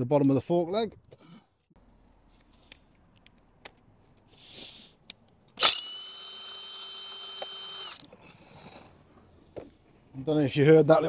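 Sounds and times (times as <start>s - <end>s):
impact wrench: 5.6s - 8.1s.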